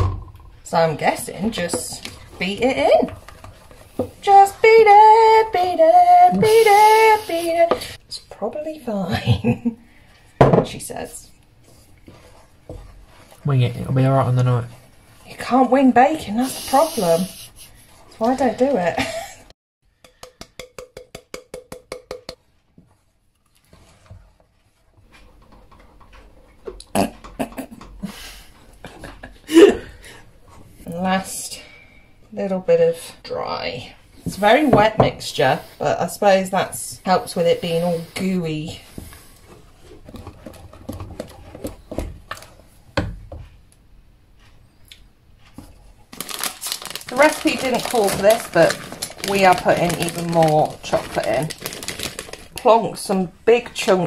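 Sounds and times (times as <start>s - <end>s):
batter stirring: 0.8s - 4.6s, 11.6s - 18.8s, 20.1s - 28.0s, 37.6s - 42.7s, 45.5s - 52.7s
utensil knocking against bowl: 20.0s - 22.4s.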